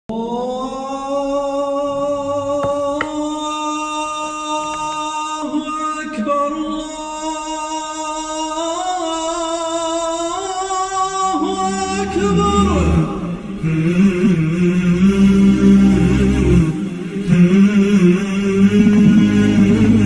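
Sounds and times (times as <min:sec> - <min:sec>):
person singing long notes: 0:00.1 - 0:20.0.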